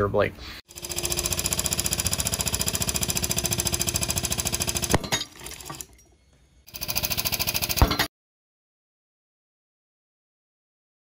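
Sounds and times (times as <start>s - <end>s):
hydraulic pump chattering: 0.7s - 6.1s, 6.7s - 8.1s.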